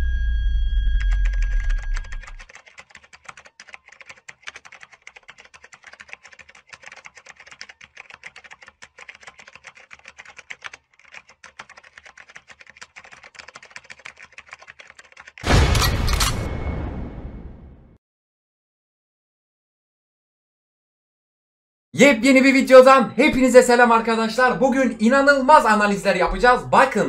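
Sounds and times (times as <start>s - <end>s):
keyboard typing: 1.0s - 16.4s.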